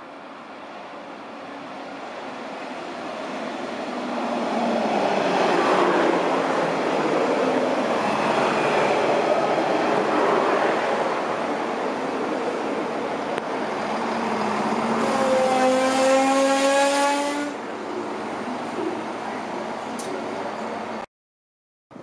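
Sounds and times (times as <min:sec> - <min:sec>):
train rolling on rails: 0:00.0 - 0:21.0
train drive drone rising in pitch: 0:13.3 - 0:17.6.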